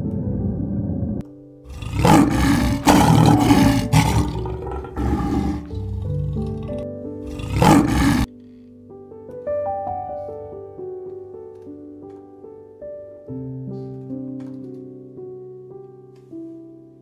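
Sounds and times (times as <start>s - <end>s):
lion roaring: 0.7s - 8.3s.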